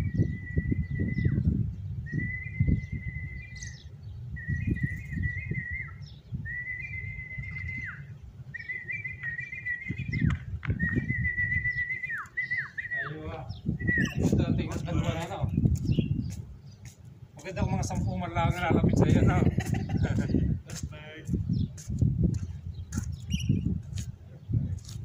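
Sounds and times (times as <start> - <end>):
high whistle: 2.1 - 3.7, 4.4 - 8.0, 10.8 - 13.1, 13.8 - 14.4.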